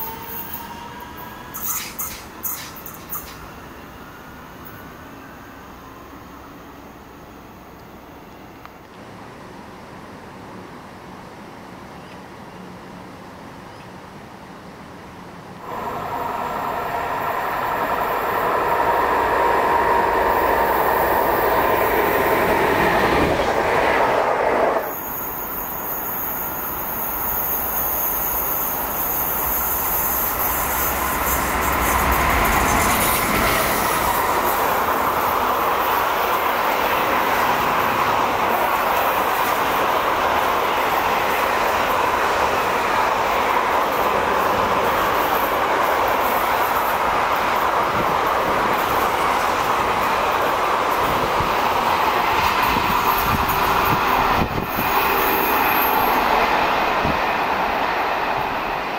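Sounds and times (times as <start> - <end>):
freight train wheel rumble and clatter: 1.4 - 3.6, 15.6 - 58.9
high steady squeal: 15.6 - 36.7, 52.1 - 58.9.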